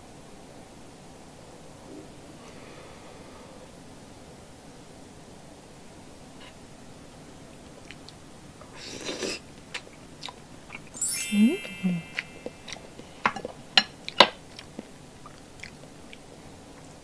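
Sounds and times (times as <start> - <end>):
twinkling chime effect: 11.0 - 13.2.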